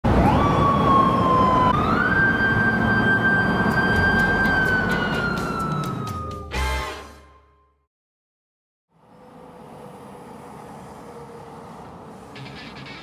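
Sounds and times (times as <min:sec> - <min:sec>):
road and engine noise: 0:00.0 - 0:06.9, 0:08.9 - 0:13.0
motorcycle siren wailing: 0:00.1 - 0:06.5.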